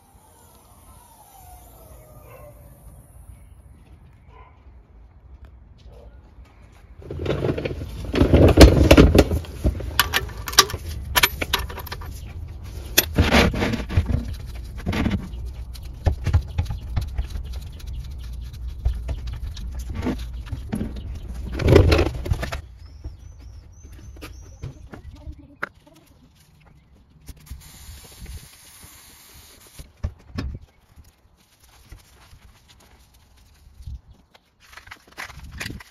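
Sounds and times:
metallic clicks and scrapes: 0:07.0 - 0:22.6.

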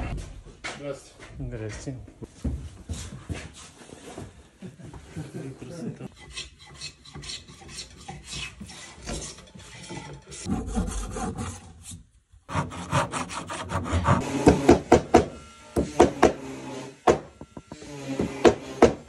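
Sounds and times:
hand tool scraping fingerboard: 0:06.1 - 0:14.8
fret saw sawing: 0:06.1 - 0:19.0.

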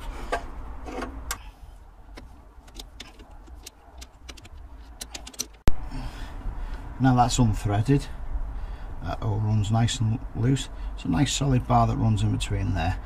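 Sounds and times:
spanner clicking on metal: 0:02.7 - 0:05.6.

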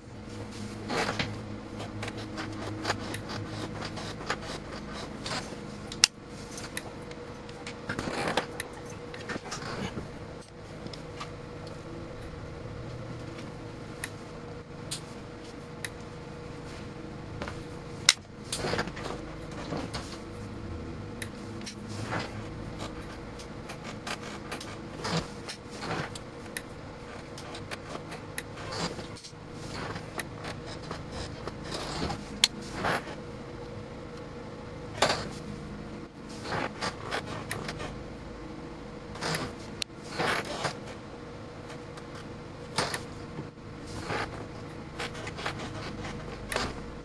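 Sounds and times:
steady electrical hum: 0:00.0 - 0:47.0.

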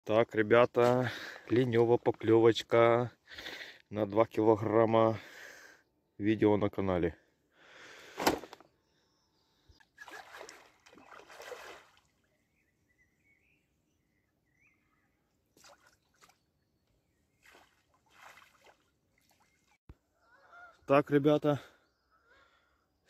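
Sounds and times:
water splashing in shallows: 0:10.0 - 0:12.3, 0:15.6 - 0:16.4, 0:17.3 - 0:19.8
faint bird chirps: 0:12.2 - 0:15.4, 0:21.7 - 0:23.0.

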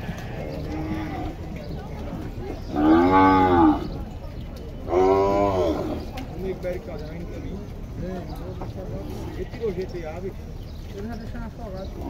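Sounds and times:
cattle mooing: 0:02.7 - 0:03.9.

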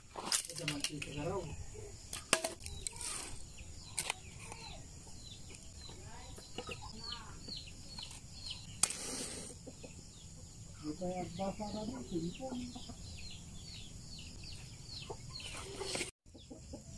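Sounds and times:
firewood sticks knocking together: 0:00.2 - 0:01.2, 0:02.1 - 0:03.1
chickens clucking: 0:09.2 - 0:10.7, 0:12.0 - 0:13.2, 0:14.9 - 0:16.9.

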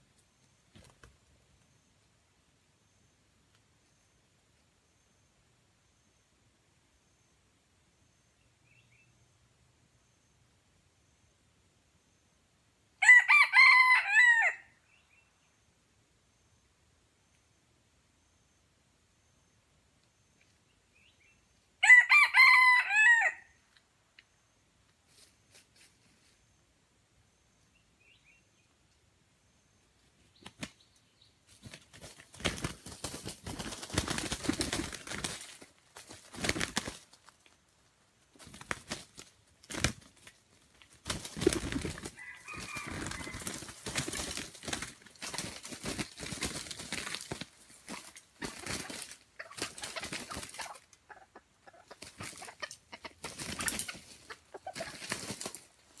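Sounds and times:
rooster wings beating: 0:31.6 - 0:37.3, 0:38.4 - 0:50.8
thrashing through dry leaves: 0:41.0 - 0:50.8.

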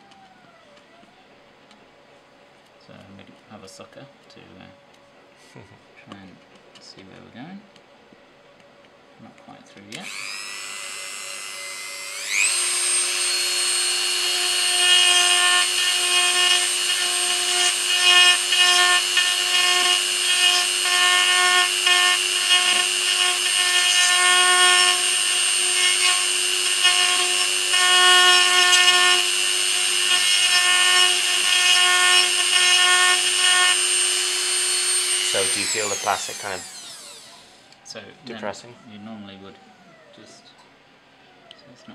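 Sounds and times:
rotary tool drilling plastic: 0:10.0 - 0:37.6.

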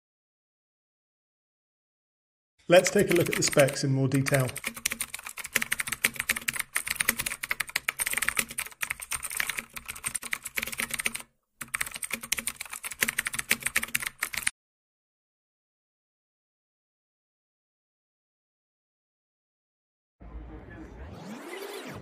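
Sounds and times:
rapid keyboard typing: 0:02.7 - 0:14.5.

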